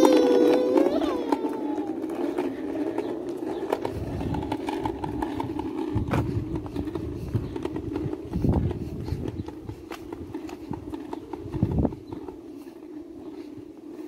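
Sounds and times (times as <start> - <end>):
scooter wheels rolling on asphalt: 0.0 - 14.0
wind on microphone: 3.8 - 12.3.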